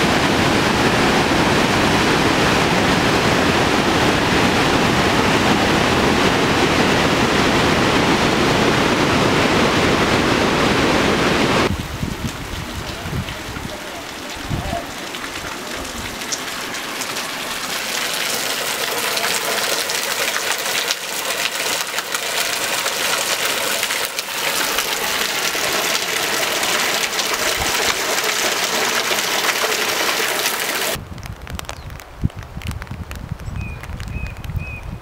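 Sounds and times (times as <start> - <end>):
water pouring into pool: 13.7 - 31.0.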